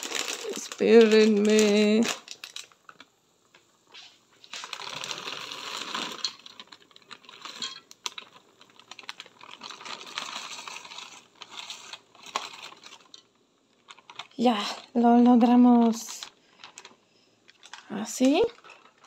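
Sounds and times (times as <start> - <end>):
frozen beans rattling into pot: 0.0 - 3.1, 4.4 - 19.0
plastic bag crinkling: 0.0 - 3.1, 3.9 - 19.0.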